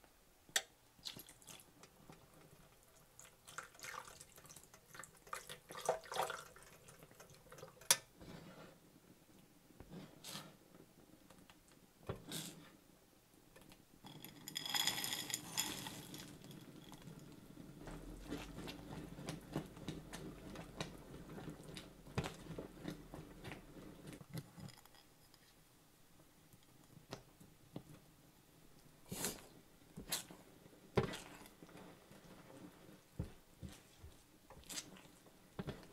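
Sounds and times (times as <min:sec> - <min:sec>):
spatula stirring wet squelching: 0:01.0 - 0:10.7, 0:15.6 - 0:24.3, 0:29.2 - 0:35.9
frozen vegetables rattling into pan: 0:14.1 - 0:16.8.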